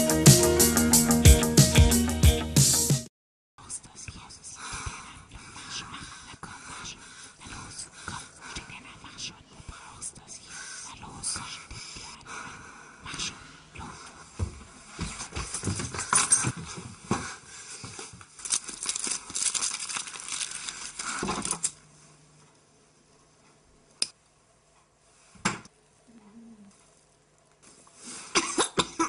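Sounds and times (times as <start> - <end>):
crackling rustling noise: 14.7 - 22.6
woman coughing: 28.3 - 29.0.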